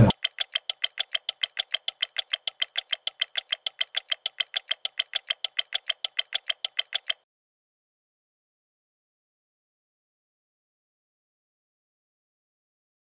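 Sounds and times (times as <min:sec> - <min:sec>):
rapid even ticking: 0:00.0 - 0:07.2.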